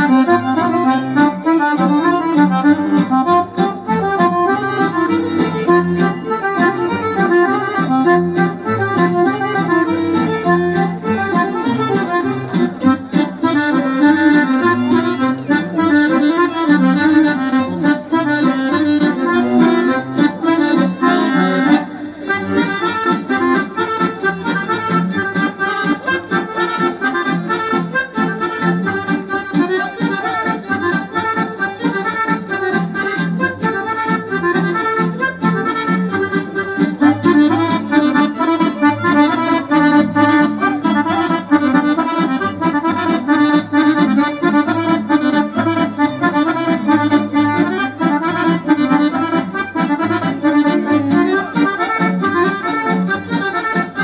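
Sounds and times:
accordion folk dance music: 0.0 - 54.0.

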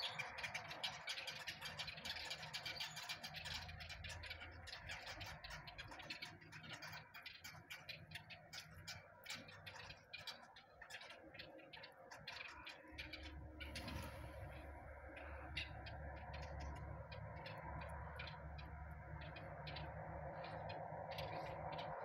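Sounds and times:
small birds chipping and chattering: 0.0 - 22.0
low hum: 13.0 - 22.0.

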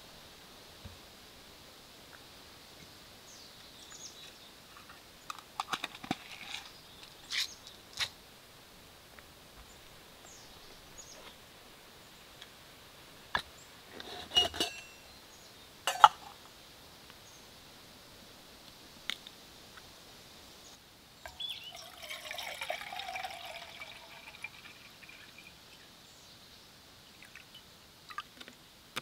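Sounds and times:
camp cookware clinking: 14.0 - 15.1, 15.8 - 16.4, 21.2 - 25.4
faint bird chirps: 20.6 - 22.0.

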